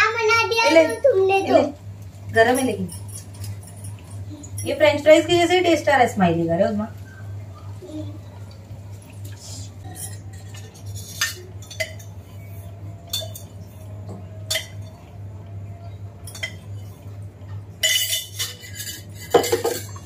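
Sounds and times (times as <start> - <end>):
steady low hum: 0.0 - 20.0
steel kitchenware clinking: 2.4 - 5.6, 9.8 - 12.2, 13.0 - 15.1, 15.9 - 17.0, 17.8 - 20.0.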